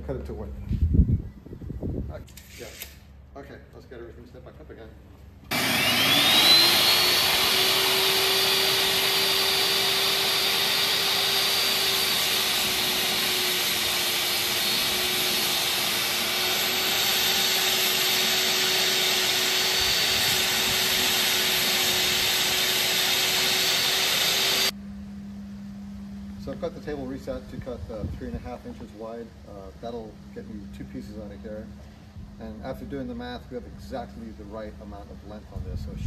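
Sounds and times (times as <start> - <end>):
saw ripping a board: 5.5 - 24.7
shop vacuum running: 5.5 - 24.8
table saw motor whine: 5.5 - 24.8.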